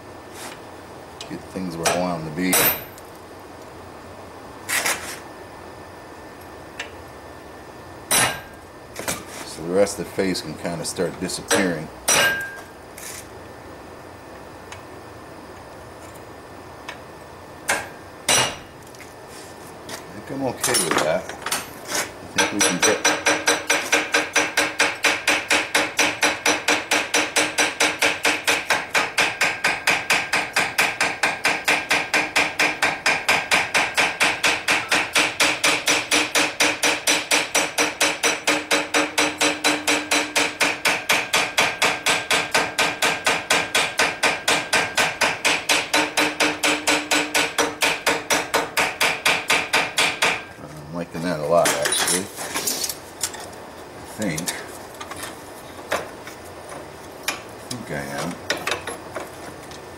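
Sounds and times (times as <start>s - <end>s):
hammer striking metal: 1.8s - 3.0s, 8.1s - 8.6s, 11.5s - 12.7s, 17.7s - 18.7s, 22.4s - 50.5s.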